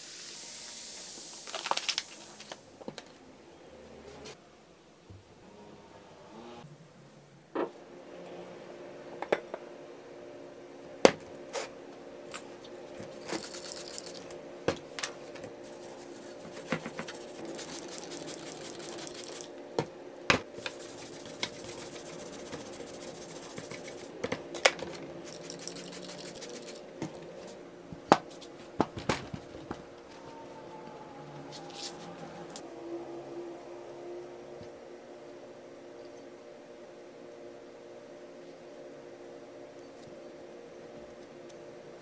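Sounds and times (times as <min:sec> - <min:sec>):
spray bottle hissing: 0:15.6 - 0:19.5, 0:20.6 - 0:24.1, 0:25.3 - 0:26.9.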